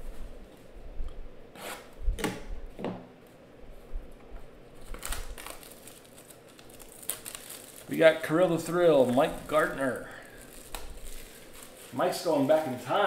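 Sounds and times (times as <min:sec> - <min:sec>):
hands rustling plastic shrink-wrap: 0:04.8 - 0:13.0.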